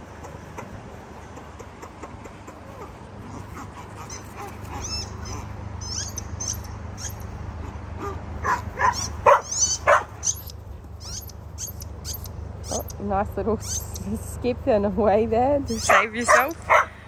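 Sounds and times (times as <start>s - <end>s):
dogs barking: 2.6s - 12.8s, 15.7s - 17.0s
squeaky dog toy squeaking: 4.8s - 7.2s, 9.0s - 13.0s, 13.6s - 14.0s, 15.7s - 16.6s.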